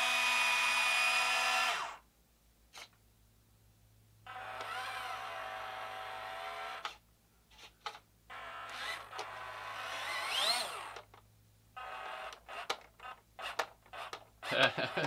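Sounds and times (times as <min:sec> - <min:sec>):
toy truck electric motor whining: 0:00.0 - 0:02.0, 0:04.3 - 0:07.0, 0:08.3 - 0:11.2, 0:11.8 - 0:15.0.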